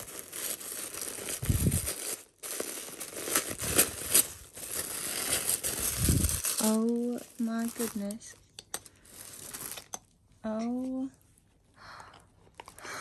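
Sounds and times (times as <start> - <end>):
tissue paper rustling: 0.0 - 8.4, 9.0 - 9.9.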